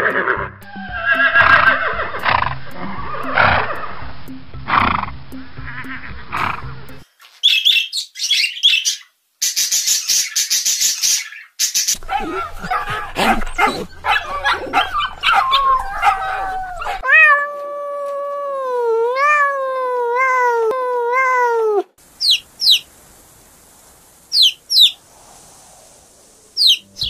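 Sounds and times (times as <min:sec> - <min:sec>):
long wavering animal call: 0:00.6 - 0:03.9, 0:12.0 - 0:21.8
small dog yipping and barking: 0:12.0 - 0:17.4.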